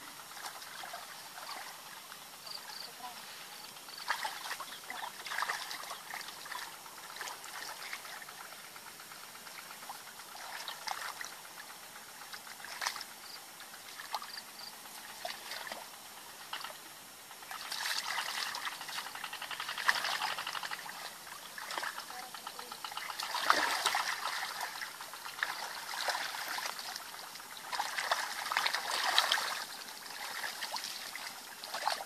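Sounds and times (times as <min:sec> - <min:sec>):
muddy water sloshing: 0:00.2 - 0:16.8, 0:17.4 - 0:32.0
small water splashes: 0:00.3 - 0:02.2, 0:03.9 - 0:08.5, 0:09.5 - 0:13.2, 0:15.0 - 0:15.9, 0:17.4 - 0:32.0.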